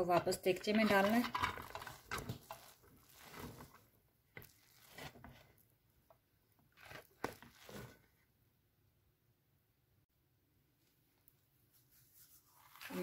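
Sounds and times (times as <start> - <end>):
rice scraping and rustling: 0.8 - 3.8, 4.4 - 5.4, 6.8 - 8.0, 12.2 - 13.0.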